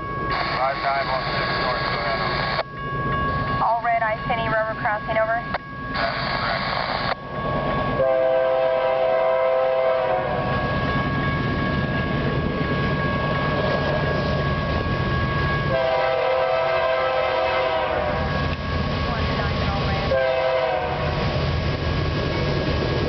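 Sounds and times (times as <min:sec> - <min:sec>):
train rumble: 0:00.0 - 0:23.0
radio scanner static: 0:00.3 - 0:02.6, 0:06.0 - 0:07.2
train air horn chord: 0:08.0 - 0:10.4, 0:15.7 - 0:18.4, 0:20.1 - 0:21.2.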